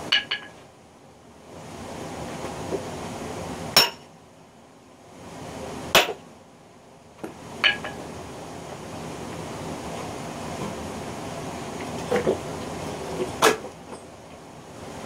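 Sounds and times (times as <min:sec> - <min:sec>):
sledgehammer striking steel wedge: 0:03.8 - 0:04.0, 0:06.0 - 0:06.2.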